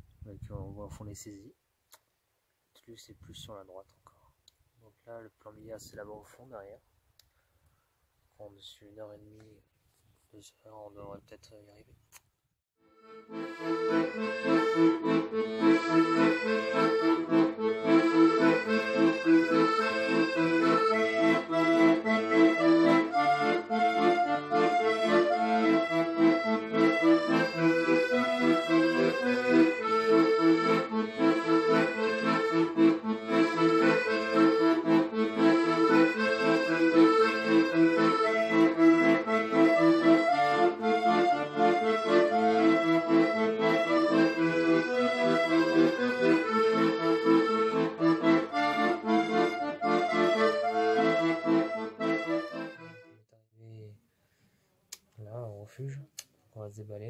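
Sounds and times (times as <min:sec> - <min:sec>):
accordion folk music: 0:12.8 - 0:53.3.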